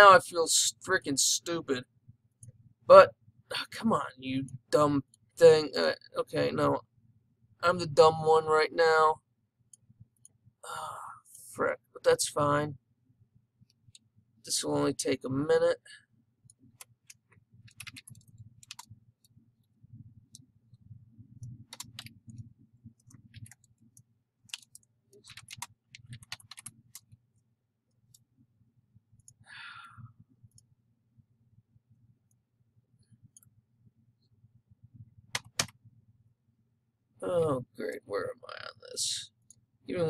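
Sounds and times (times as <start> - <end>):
faint low hum: 0.0 - 40.0
keyboard keystrokes: 16.8 - 18.9, 21.6 - 22.2, 24.5 - 27.1, 35.3 - 35.8.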